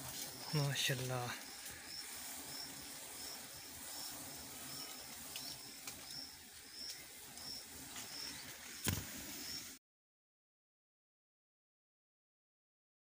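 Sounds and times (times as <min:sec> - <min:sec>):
small bird chirping: 0:00.1 - 0:09.8.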